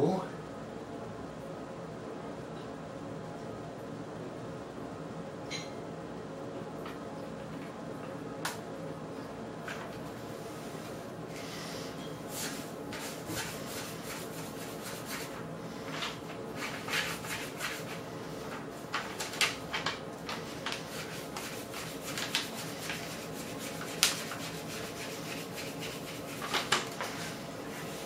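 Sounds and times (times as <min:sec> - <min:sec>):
squeegee scrapes: 0:10.5 - 0:18.5, 0:20.4 - 0:28.0
plastic squeegee rubbing: 0:12.3 - 0:18.0, 0:20.3 - 0:28.0.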